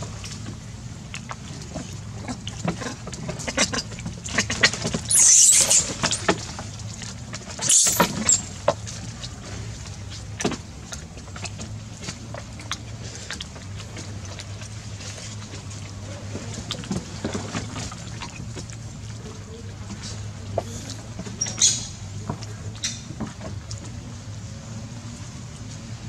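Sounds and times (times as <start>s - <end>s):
monkeys scuffling: 5.1s - 6.3s, 7.6s - 8.6s.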